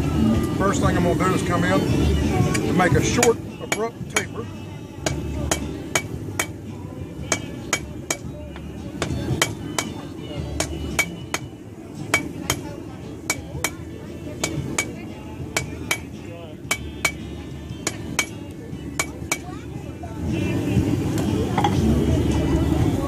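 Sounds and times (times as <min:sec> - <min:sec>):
hammer striking steel on anvil: 0:03.2 - 0:04.4, 0:05.0 - 0:06.6, 0:07.3 - 0:08.3, 0:09.0 - 0:10.0, 0:10.6 - 0:11.5, 0:12.1 - 0:12.7, 0:13.3 - 0:13.8, 0:14.4 - 0:18.4, 0:19.0 - 0:19.5.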